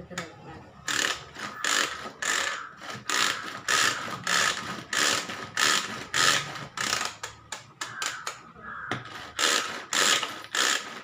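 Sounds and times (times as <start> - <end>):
onion chopper ratcheting whirrs: 0.1 - 11.0.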